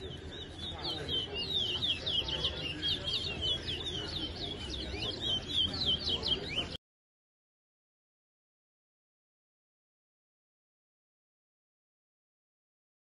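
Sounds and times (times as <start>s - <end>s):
finch chirping: 0.0s - 6.8s
murmur of voices: 0.0s - 6.8s.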